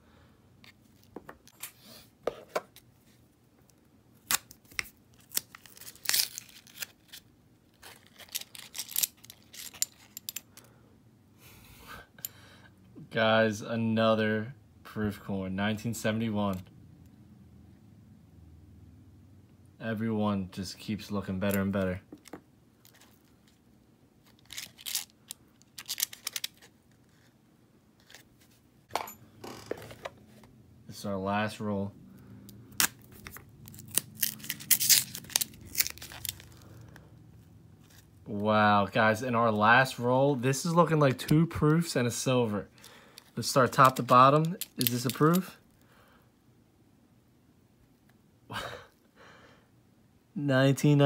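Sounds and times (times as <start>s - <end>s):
paper wrapper tearing and crinkling: 4.2s - 9.7s, 24.3s - 27.2s, 32.8s - 37.0s.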